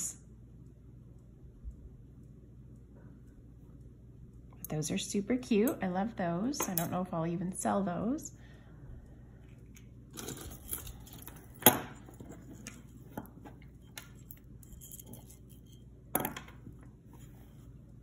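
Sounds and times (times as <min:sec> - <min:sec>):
chain necklace clinking: 0:10.1 - 0:12.6, 0:14.0 - 0:15.8.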